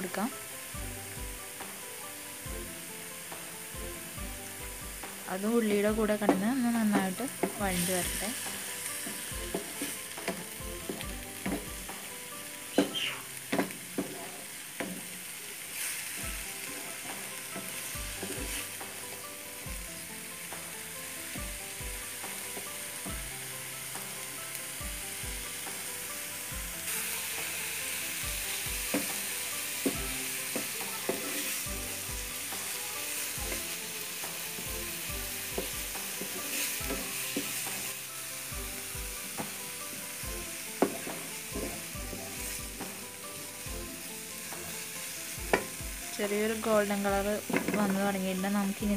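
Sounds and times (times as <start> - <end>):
onion sizzling in oil: 0.0 - 48.9
wooden spatula scraping a pan: 2.6 - 23.3, 26.5 - 48.9.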